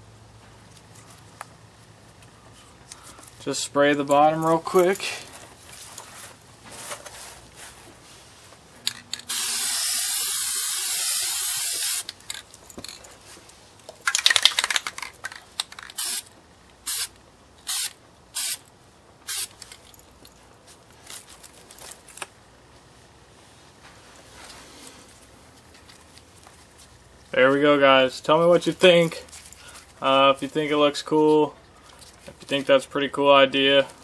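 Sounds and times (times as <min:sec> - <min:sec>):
spray paint can hissing: 0:09.3 - 0:12.1, 0:15.9 - 0:19.6.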